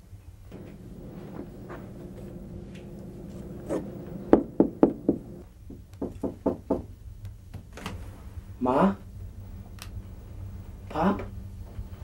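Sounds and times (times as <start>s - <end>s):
knuckles knocking on door: 4.3s - 6.9s.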